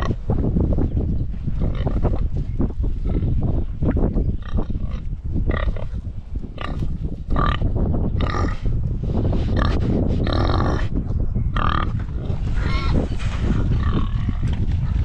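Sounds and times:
pigs grunting: 0:06.6 - 0:08.7, 0:09.5 - 0:11.0.

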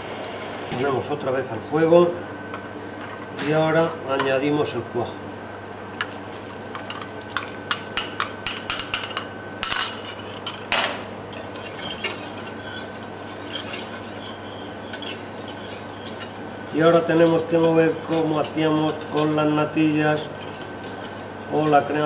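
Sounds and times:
whisk clinking against metal pan: 0:11.3 - 0:21.8
soft stirring: 0:11.3 - 0:22.0
whisk swishing: 0:11.4 - 0:21.4.

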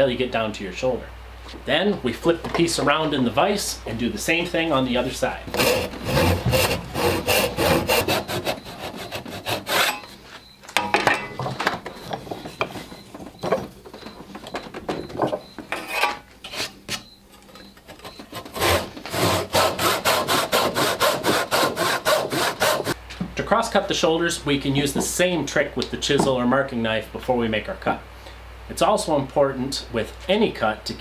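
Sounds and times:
hand saw cutting wood: 0:05.5 - 0:10.2, 0:18.0 - 0:23.0.

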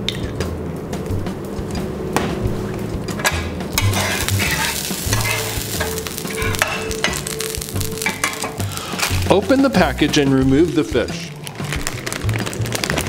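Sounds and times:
metal spatula scraping griddle: 0:03.8 - 0:06.9
oil sizzling on hot surface: 0:03.8 - 0:13.0.

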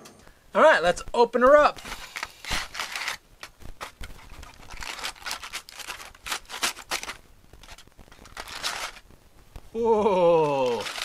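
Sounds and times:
aluminium foil crinkling and tearing: 0:01.7 - 0:09.2, 0:10.1 - 0:11.0.

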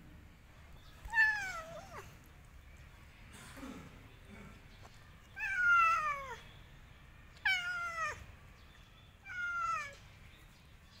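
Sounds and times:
cat meowing: 0:01.0 - 0:02.2, 0:05.3 - 0:06.4, 0:07.4 - 0:08.3, 0:09.2 - 0:10.0.

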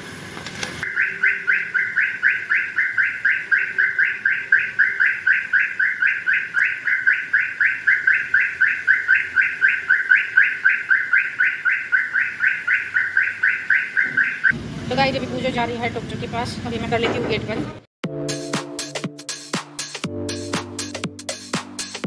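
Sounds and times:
car reverse horn chirping: 0:00.8 - 0:14.6.

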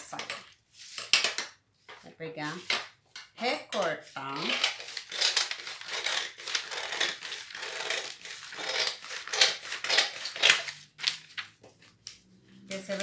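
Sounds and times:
paper rustling: 0:04.1 - 0:13.0
scissors snipping paper: 0:04.6 - 0:11.4.

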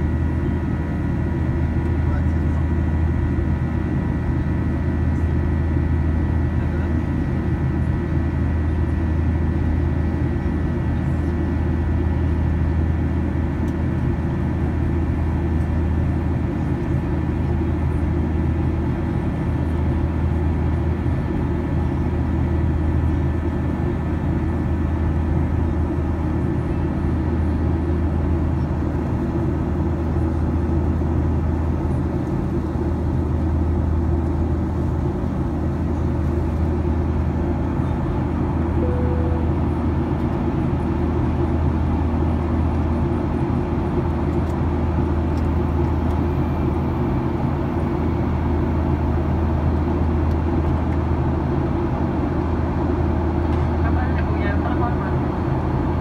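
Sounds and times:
jet engine drone: 0:00.0 - 0:56.0
high engine tones: 0:38.8 - 0:40.4.

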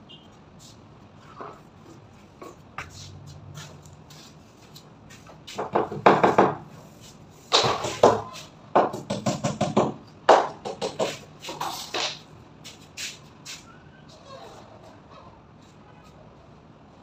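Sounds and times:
knocks and taps on wall panels: 0:05.6 - 0:06.7, 0:07.5 - 0:11.2.

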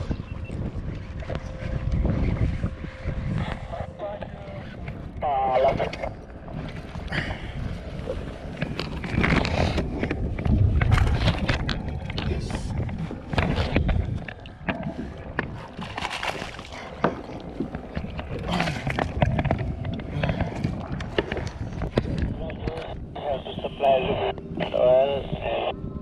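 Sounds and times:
wind buffeting microphone: 0:00.0 - 0:26.0
heavy rumble: 0:07.1 - 0:15.8, 0:16.7 - 0:26.0.

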